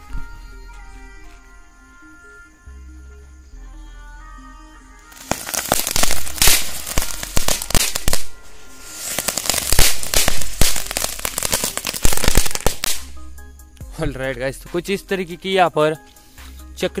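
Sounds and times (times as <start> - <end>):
firework pops: 5.1 - 8.3, 9.0 - 13.1
ground-spinner firework crackling: 5.1 - 13.1.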